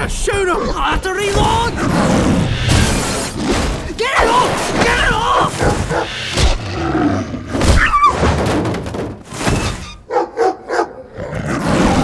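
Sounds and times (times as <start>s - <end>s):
animals snarling: 5.4s - 8.1s, 10.4s - 12.0s
dog yelping: 10.1s - 11.1s.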